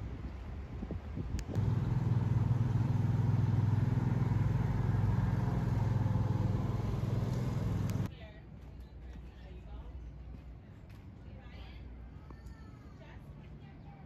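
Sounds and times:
vehicle engine running: 0:01.4 - 0:08.1.

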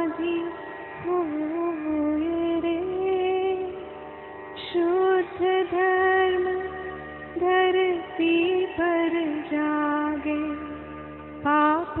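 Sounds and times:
person singing long sliding notes: 0:04.6 - 0:12.0.

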